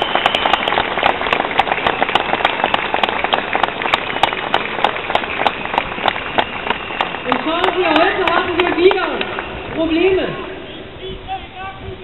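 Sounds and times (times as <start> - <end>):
shrill whistle: 0.0 - 2.5, 5.4 - 8.1
crowd applauding: 0.0 - 10.2.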